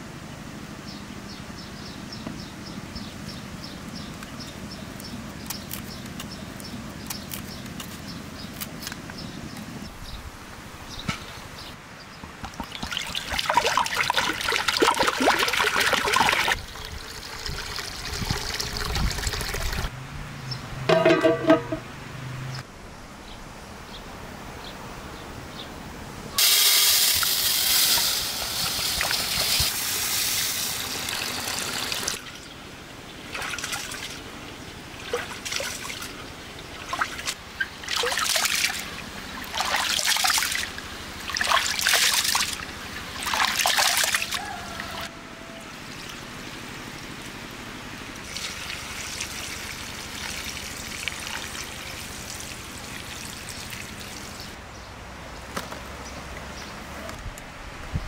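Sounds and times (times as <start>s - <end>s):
rinse water poured onto ground: 12.5s - 19.9s, 36.8s - 44.4s, 48.2s - 54.5s
water pouring: 12.5s - 19.9s, 26.4s - 32.4s, 36.8s - 44.4s, 48.2s - 54.5s.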